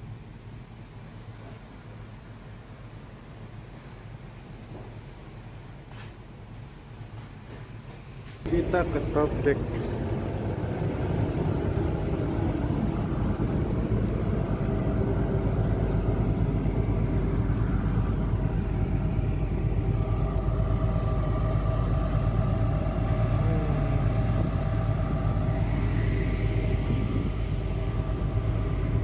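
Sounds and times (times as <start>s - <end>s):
higher machinery hum: 8.2s - 29.0s
ship engines droning: 8.2s - 29.0s.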